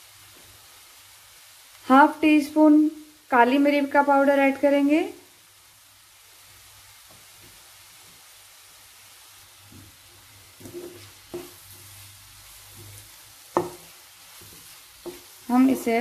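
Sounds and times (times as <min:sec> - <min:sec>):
vegetables sizzling in a pan: 0:00.0 - 0:16.0
spatula knocking against pan: 0:10.6 - 0:11.6, 0:13.5 - 0:13.9, 0:15.0 - 0:15.3.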